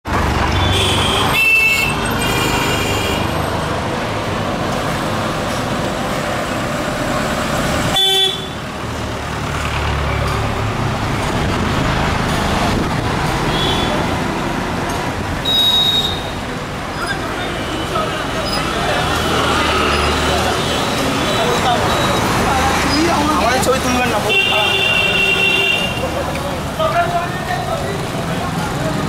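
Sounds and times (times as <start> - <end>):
street traffic: 0.0 - 29.0
vehicle horns honking: 0.5 - 3.4, 7.9 - 8.6, 13.5 - 14.1, 15.4 - 16.4, 24.2 - 26.2.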